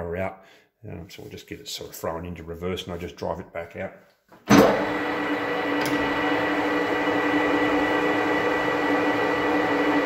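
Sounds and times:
metal lathe hum and whine: 0:04.8 - 0:10.0.

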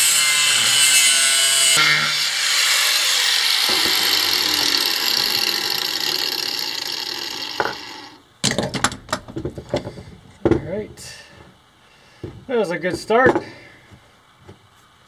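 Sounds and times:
angle grinder cutting metal: 0:00.0 - 0:08.3
grinder whine spinning down: 0:00.0 - 0:08.3.

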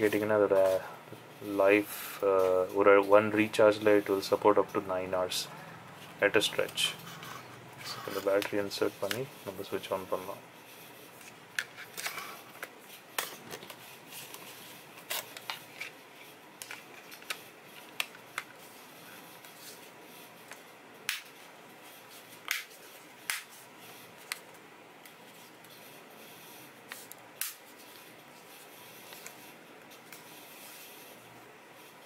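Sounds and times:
plastic handling noise: 0:11.1 - 0:18.7.

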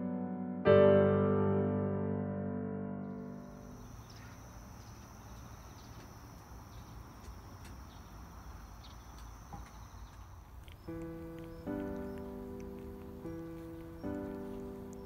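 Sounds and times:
faint chirps: 0:03.0 - 0:15.0
insect trilling: 0:03.2 - 0:15.0.

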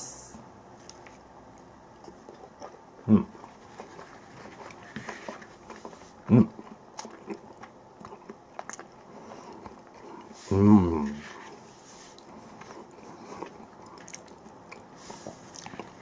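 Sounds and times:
person chewing: 0:02.0 - 0:10.5, 0:11.1 - 0:16.0
person humming mm: 0:10.4 - 0:11.3.

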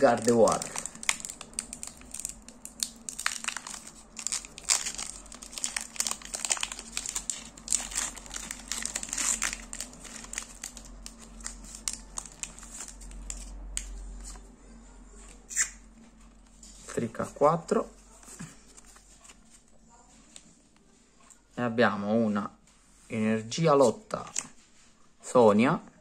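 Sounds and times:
foil wrapper crinkling and tearing: 0:00.0 - 0:14.0.

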